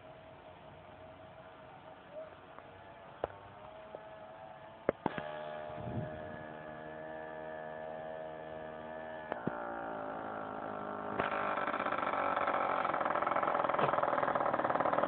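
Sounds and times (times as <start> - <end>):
vehicle engine running: 0.0 - 15.0
sharp knocks: 11.2 - 15.0.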